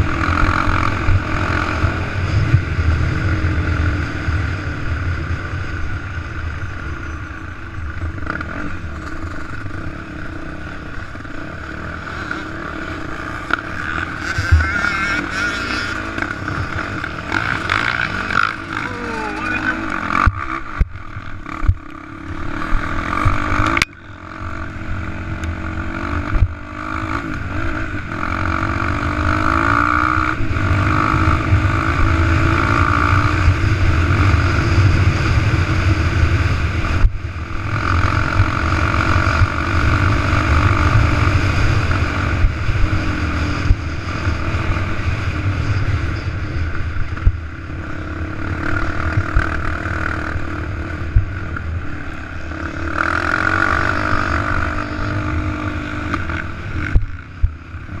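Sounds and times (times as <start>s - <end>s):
wind rumble on camera: 0.0s - 18.8s, 19.8s - 58.0s
motorcycle engine revving: 0.0s - 58.0s.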